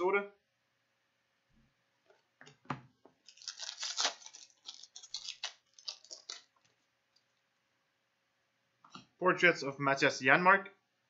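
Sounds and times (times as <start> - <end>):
wrapper crinkling and tearing: 3.2 - 6.9.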